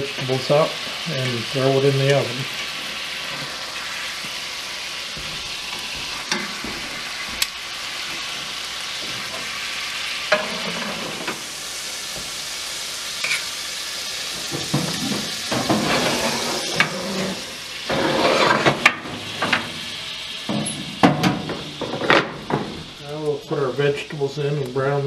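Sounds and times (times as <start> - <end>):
meat sizzling in butter: 0.0 - 25.0
scraping and clatter of skillet: 5.7 - 7.1, 10.3 - 11.4, 14.3 - 19.8.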